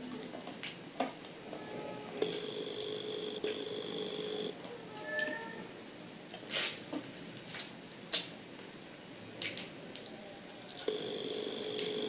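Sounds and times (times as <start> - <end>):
steady humming tone: 2.0 - 4.6, 10.9 - 12.0.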